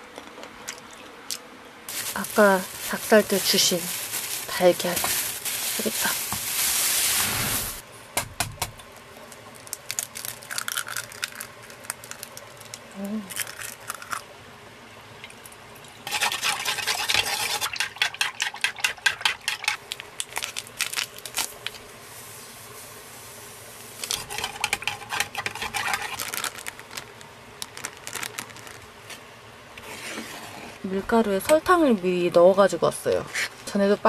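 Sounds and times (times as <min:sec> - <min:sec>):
stirring dough in a bowl: 0:24.2 - 0:26.2.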